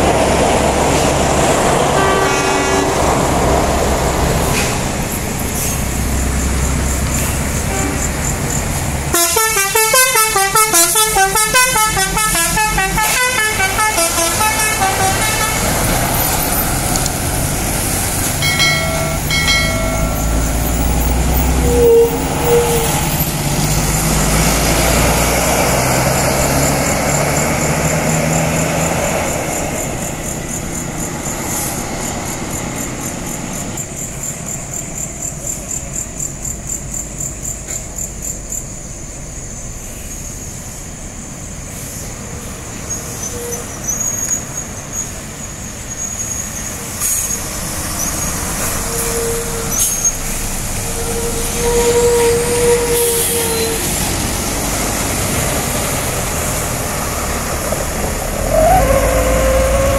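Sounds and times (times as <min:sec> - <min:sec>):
bus engine running: 0:00.0 - 0:59.9
bus musical horn tune: 0:01.9 - 0:03.2, 0:07.6 - 0:08.2, 0:09.1 - 0:16.0, 0:18.4 - 0:23.2, 0:50.8 - 0:54.2.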